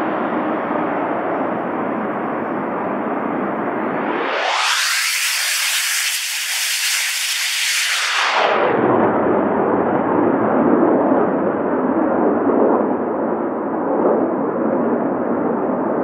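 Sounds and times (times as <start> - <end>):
jet aircraft passing: 3.3 - 9.2.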